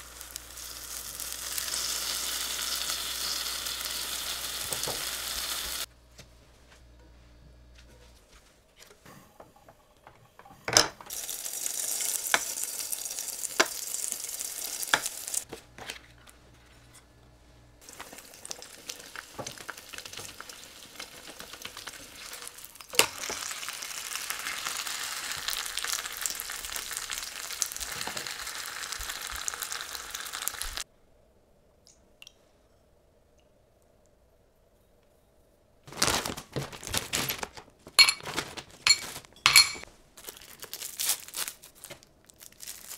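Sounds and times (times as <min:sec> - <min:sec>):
oil sizzling in a frying pan: 0:00.0 - 0:05.9, 0:11.1 - 0:15.5, 0:17.8 - 0:30.8.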